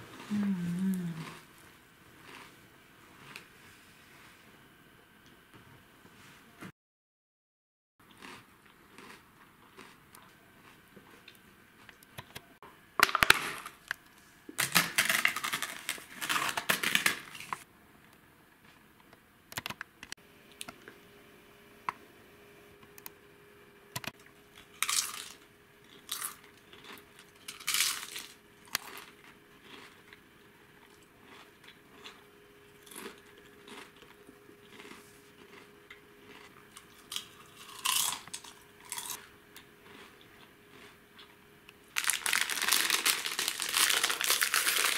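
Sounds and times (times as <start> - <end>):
crunchy snacks being chewed: 0.1 - 1.5, 2.2 - 3.5, 8.1 - 12.1, 14.6 - 17.6, 24.5 - 32.2, 32.8 - 44.9
snack packet rustling: 14.6 - 17.6, 41.9 - 44.9.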